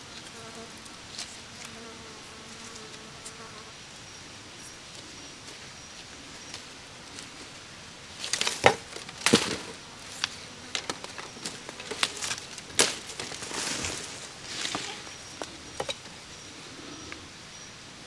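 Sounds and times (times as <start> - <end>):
rustling: 4.9 - 16.2.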